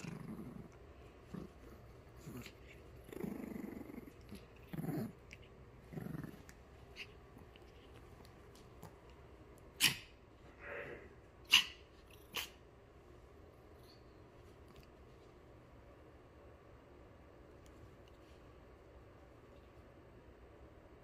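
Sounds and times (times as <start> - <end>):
puppy growling: 0.0 - 12.6.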